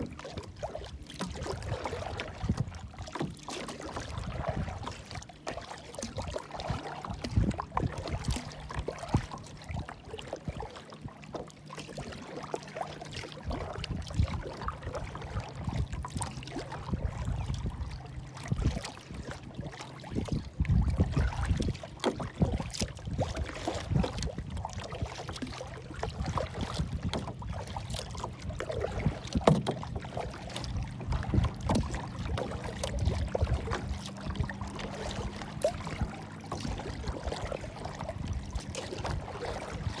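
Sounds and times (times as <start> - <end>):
water slapping against kayak hull: 0.0 - 40.0
wind gusting on microphone: 16.8 - 19.5, 20.1 - 25.0.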